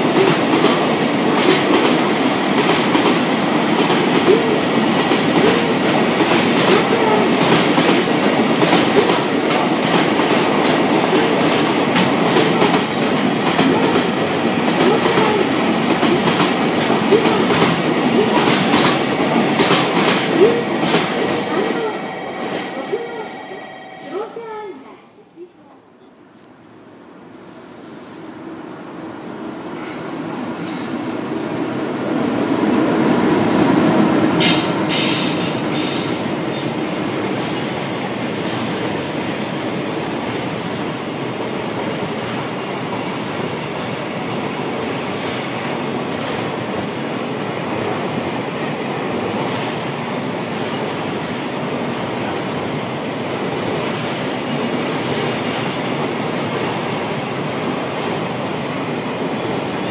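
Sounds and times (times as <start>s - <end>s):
locomotive passing: 0.0s - 25.6s.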